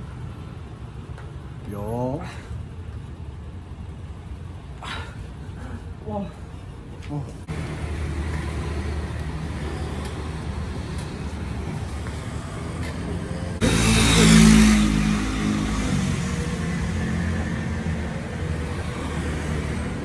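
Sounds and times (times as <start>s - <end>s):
vehicle passing by: 7.4s - 20.0s.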